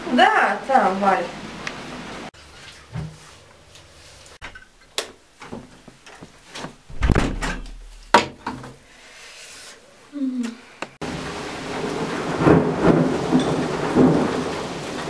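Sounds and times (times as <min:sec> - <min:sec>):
door shutting thump: 0:06.9 - 0:08.4.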